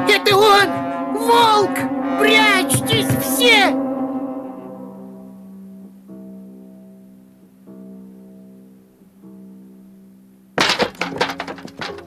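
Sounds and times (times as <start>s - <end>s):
cartoon score slow held notes: 0.0s - 5.3s
clattering knocks on wood: 2.7s - 3.3s, 10.6s - 12.0s.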